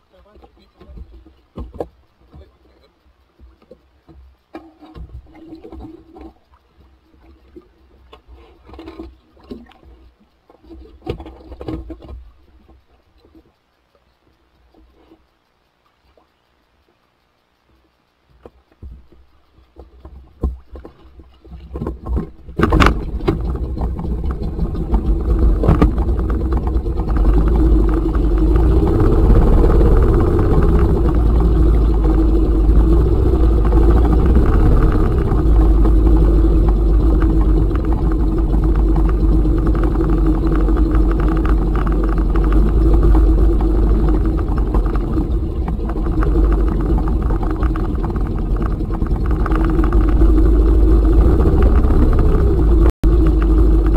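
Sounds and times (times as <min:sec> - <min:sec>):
outboard motor running: 0:20.0 - 0:53.9.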